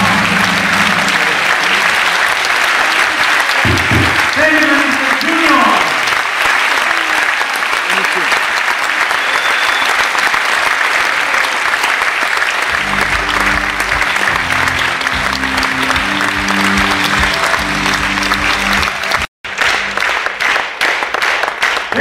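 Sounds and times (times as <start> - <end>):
music playing: 0.0 - 2.0, 12.7 - 20.2
audience applauding: 0.0 - 22.0.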